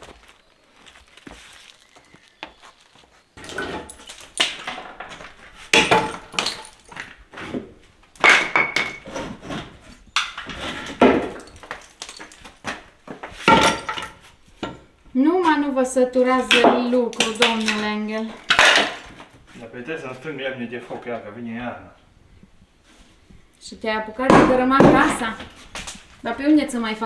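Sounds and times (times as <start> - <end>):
demolition knocks and cracks: 3.4 - 7.2
brick and plaster falling: 3.4 - 14.8, 16.4 - 19.2.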